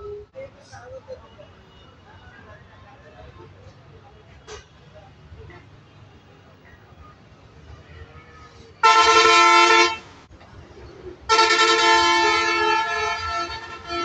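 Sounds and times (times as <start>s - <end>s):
vehicle horn blasts: 8.8s - 10.0s, 11.3s - 14.0s.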